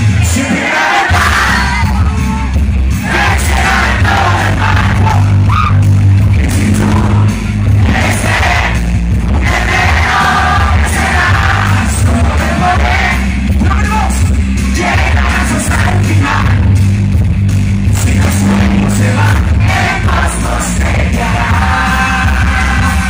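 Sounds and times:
crowd shouting along: 0:00.0 - 0:05.9
band playing with heavy bass: 0:00.0 - 0:23.0.

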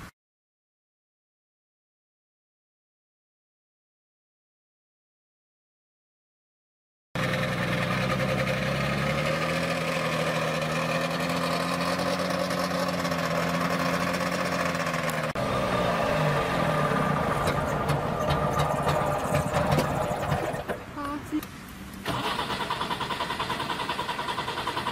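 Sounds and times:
two-stroke car engine: 0:07.2 - 0:21.1, 0:22.0 - 0:24.9.

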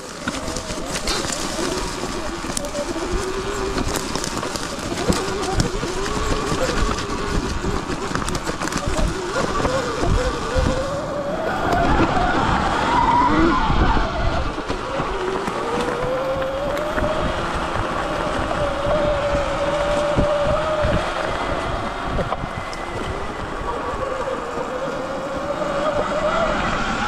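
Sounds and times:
electric motor whining: 0:00.0 - 0:27.0.

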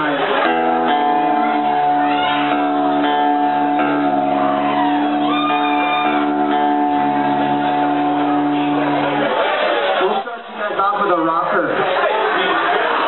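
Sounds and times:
electric guitar and bass chords: 0:00.0 - 0:10.2.

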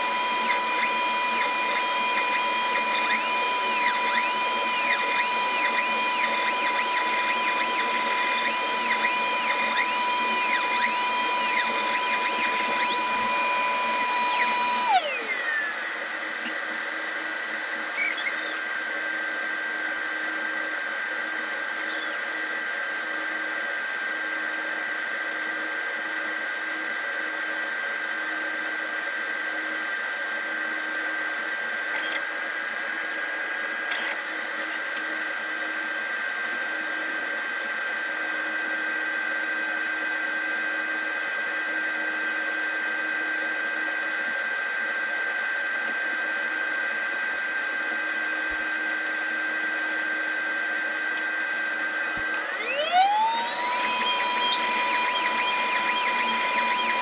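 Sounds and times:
high steady whine: 0:00.0 - 0:18.6, 0:37.4 - 0:57.0
laser cutter fans whirring: 0:00.0 - 0:57.0.

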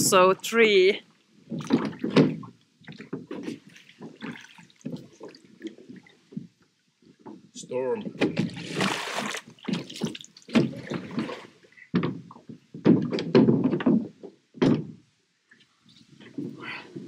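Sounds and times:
knocks and thumps on a boat: 0:01.4 - 0:15.1
water splash: 0:08.2 - 0:11.6.

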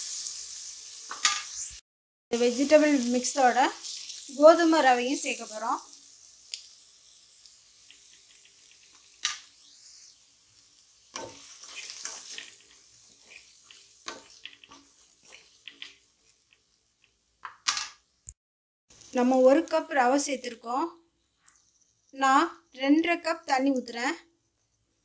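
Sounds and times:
grains pouring and hissing: 0:00.0 - 0:01.0
vegetables sizzling: 0:00.0 - 0:22.6.

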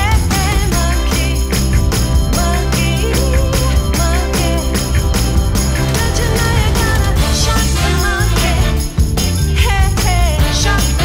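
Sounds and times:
bossa lounge pop music: 0:00.0 - 0:11.0.

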